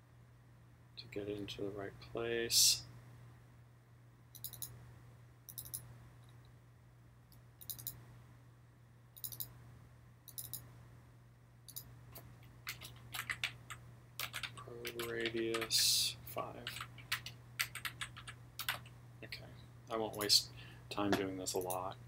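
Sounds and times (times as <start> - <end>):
faint steady hum: 0.0 - 22.0
computer mouse clicks: 4.4 - 4.8, 5.5 - 5.8, 7.3 - 8.0, 9.2 - 9.5, 10.3 - 10.6, 11.7 - 13.5.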